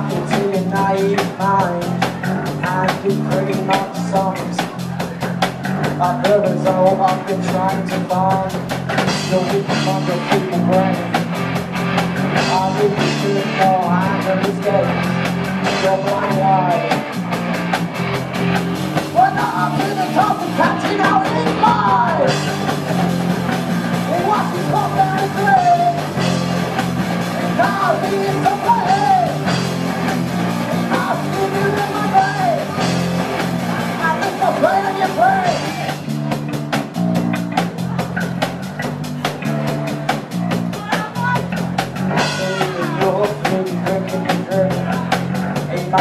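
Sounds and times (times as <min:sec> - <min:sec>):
man singing lead vocal: 0:00.0 - 0:05.0, 0:05.8 - 0:11.4, 0:12.3 - 0:17.2, 0:19.1 - 0:22.8, 0:24.0 - 0:26.4, 0:27.2 - 0:29.8, 0:30.6 - 0:32.9, 0:34.0 - 0:36.0, 0:40.7 - 0:46.0
drum kit with cymbals: 0:00.0 - 0:46.0
electric guitars: 0:00.0 - 0:46.0.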